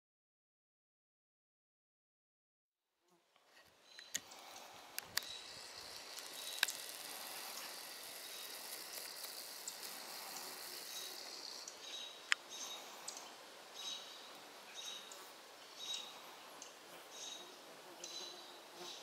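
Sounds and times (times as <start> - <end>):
high outdoor hiss: 3.0 - 19.0
sharp clicks: 3.9 - 12.4
birds giving alarm calls: 5.2 - 13.2.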